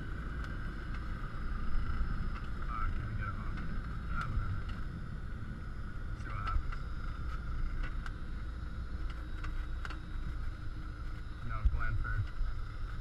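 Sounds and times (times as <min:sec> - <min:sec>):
aircraft piston engine droning: 0:00.0 - 0:13.0
faint ticks: 0:00.3 - 0:05.0.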